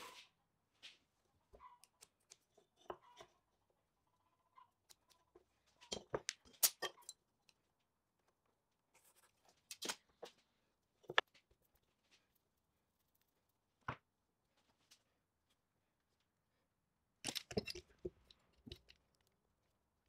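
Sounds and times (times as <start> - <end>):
wooden pieces knocking and clicking: 17.2 - 19.4.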